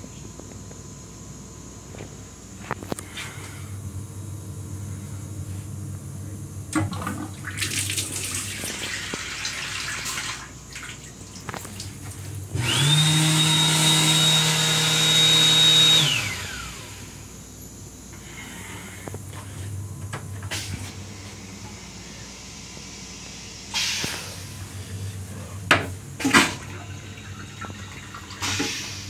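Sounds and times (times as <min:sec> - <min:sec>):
faucet water running into sink: 0:06.8 - 0:11.9
hand dryer blower whining: 0:12.5 - 0:17.3.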